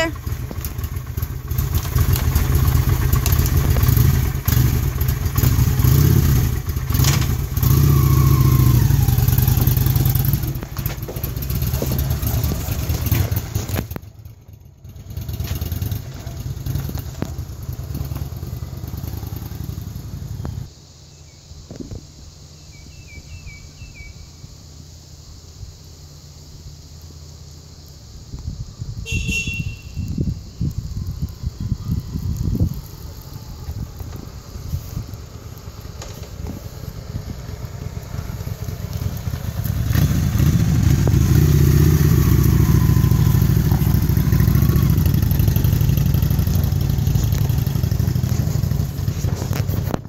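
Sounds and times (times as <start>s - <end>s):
motorcycle engine running: 0.0s - 20.7s, 29.1s - 50.0s.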